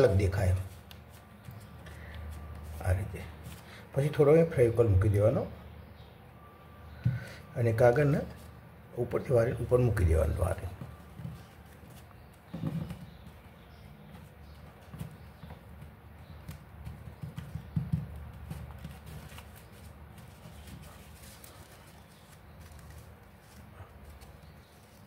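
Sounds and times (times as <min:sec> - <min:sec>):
paper rustling: 0:00.0 - 0:03.8, 0:10.9 - 0:25.0.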